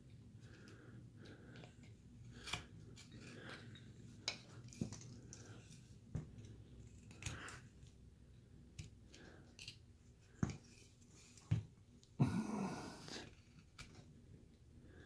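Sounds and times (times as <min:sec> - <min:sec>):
knife cutting wood: 0:02.3 - 0:03.4
knife scraping wood: 0:02.3 - 0:03.8.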